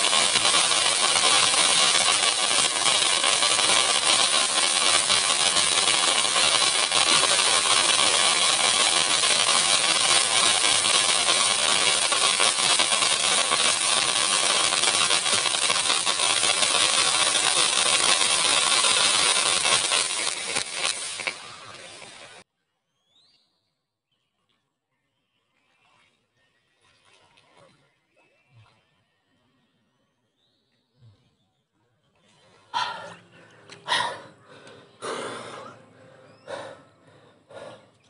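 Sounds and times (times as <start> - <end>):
fountain firework hissing: 0.0 - 22.5.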